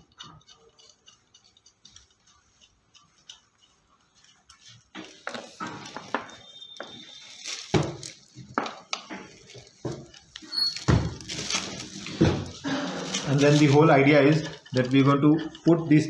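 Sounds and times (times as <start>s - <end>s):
plastic wrap crackling: 4.9s - 16.0s.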